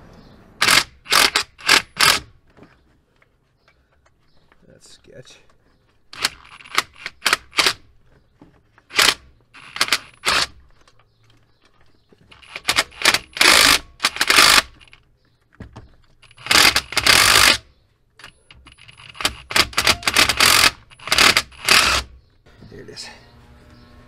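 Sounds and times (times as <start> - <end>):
cordless ratchet running: 12.4 - 14.7, 16.2 - 17.6, 18.8 - 22.1.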